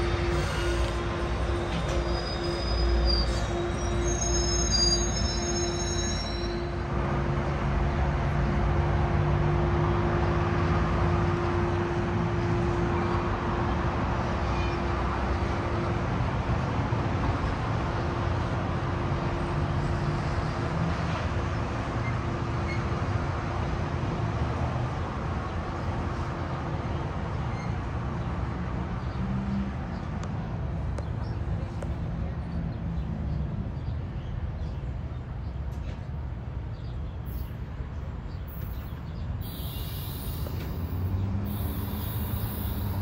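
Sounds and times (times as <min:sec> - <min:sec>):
train rumbling: 0:00.0 - 0:16.6, 0:34.4 - 0:43.0.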